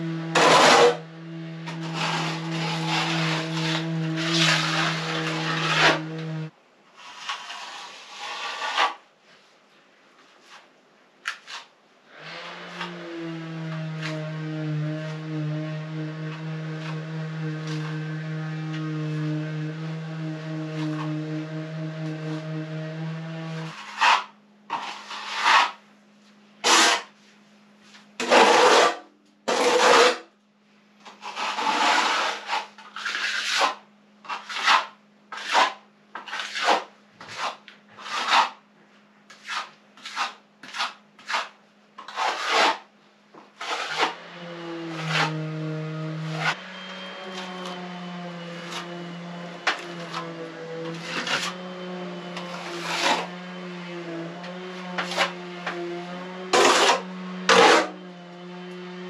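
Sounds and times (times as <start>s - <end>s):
trowel scraping plaster: 0.0s - 9.1s, 10.4s - 25.8s, 26.6s - 27.2s, 28.2s - 30.3s, 31.1s - 38.6s, 39.3s - 58.1s.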